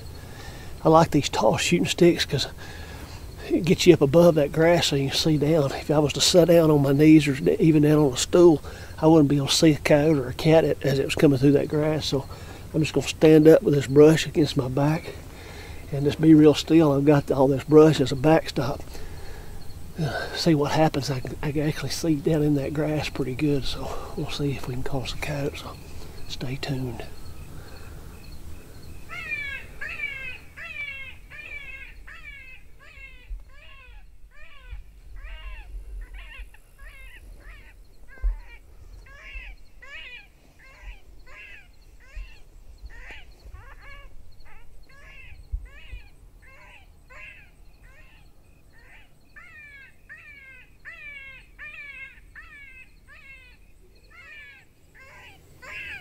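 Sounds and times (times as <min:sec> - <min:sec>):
crows cawing: 0:29.1 - 0:56.0.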